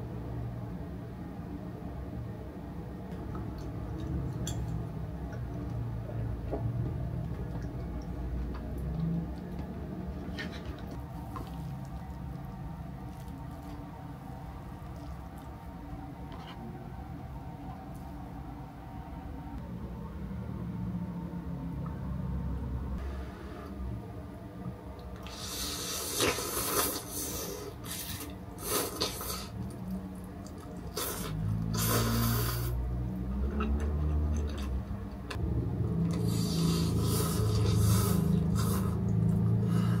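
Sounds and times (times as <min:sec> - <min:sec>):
person slurping noodles: 0:25.2 - 0:29.6, 0:30.8 - 0:32.8, 0:36.1 - 0:39.1.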